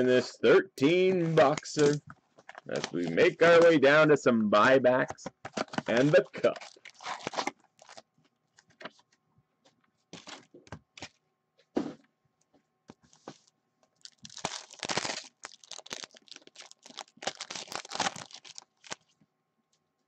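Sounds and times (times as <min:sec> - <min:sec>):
foil packs crinkling and tearing: 0:00.9 - 0:03.9, 0:05.5 - 0:08.7, 0:10.2 - 0:11.2, 0:14.0 - 0:19.1
packaging clicks: 0:14.0 - 0:19.0.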